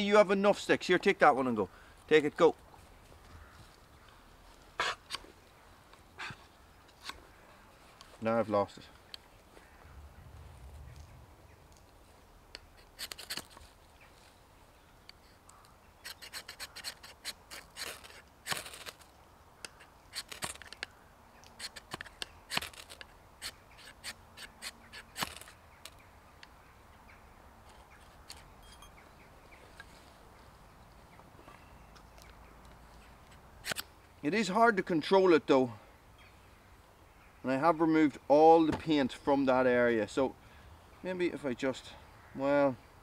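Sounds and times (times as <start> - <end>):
knife scraping ferrocerium rod: 12.6 - 13.6, 16.0 - 19.0.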